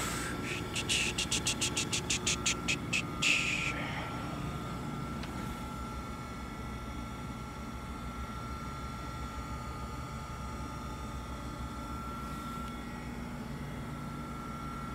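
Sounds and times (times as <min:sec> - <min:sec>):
hissing pulses: 0:00.0 - 0:04.0
grinder hum with high whine: 0:00.0 - 0:14.9.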